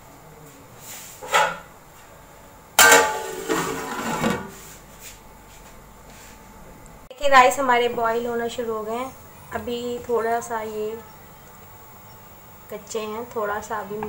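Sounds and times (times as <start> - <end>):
faint steady hiss: 0.0 - 14.0
metal lid clanging on pot: 2.8 - 4.4.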